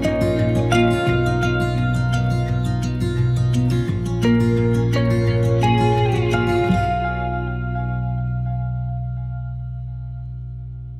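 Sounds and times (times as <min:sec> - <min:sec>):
plucked guitar notes: 0:00.0 - 0:10.9
steady low note: 0:06.8 - 0:10.9.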